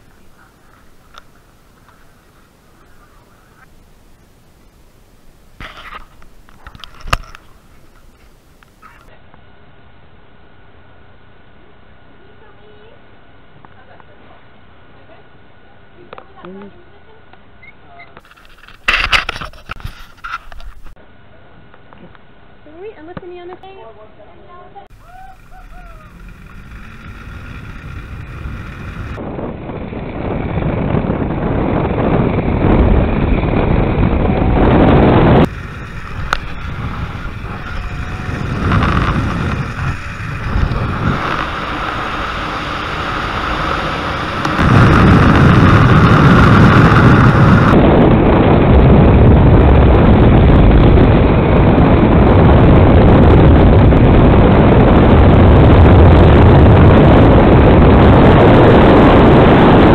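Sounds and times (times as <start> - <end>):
wind rushing over microphone: 0.0 - 9.2, 18.2 - 21.0, 24.8 - 59.9.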